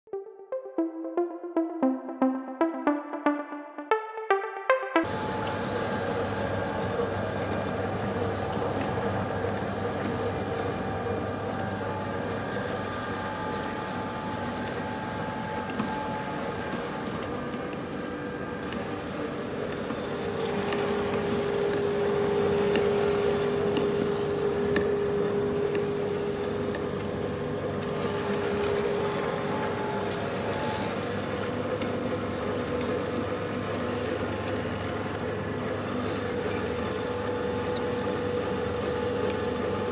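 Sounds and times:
stronger machine tone: 0.1s - 17.6s
machine mechanical hum: 5.0s - 39.9s.

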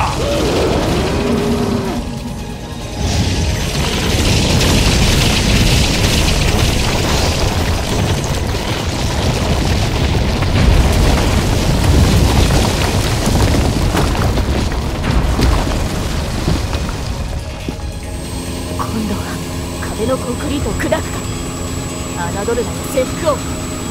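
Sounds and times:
boulder impacts and booms: 0.0s - 18.2s
heavy rumble of boulders: 0.0s - 23.9s.

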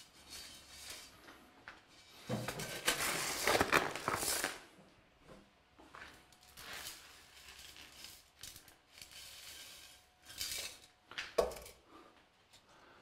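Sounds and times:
scrapes and rustles: 0.0s - 4.6s, 6.0s - 11.0s.

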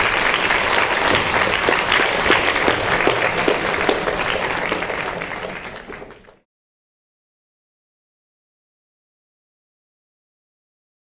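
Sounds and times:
audience clapping: 0.0s - 6.4s.

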